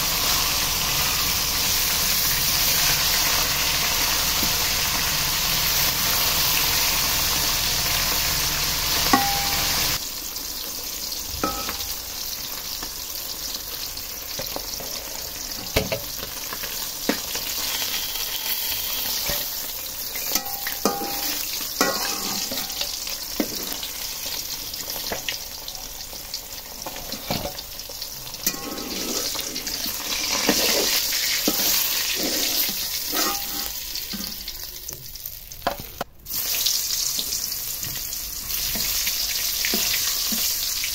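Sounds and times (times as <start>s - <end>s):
fish sizzling in hot oil: 0.0s - 40.9s
metal spatula scraping pan: 9.0s - 10.0s, 17.1s - 24.0s, 28.4s - 34.6s.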